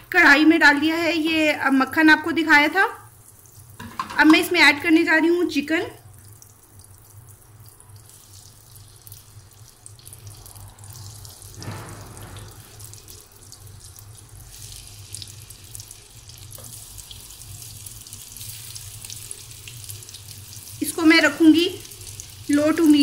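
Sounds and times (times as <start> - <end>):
butter sizzling in a frying pan: 7.3 - 11.6, 12.3 - 23.0.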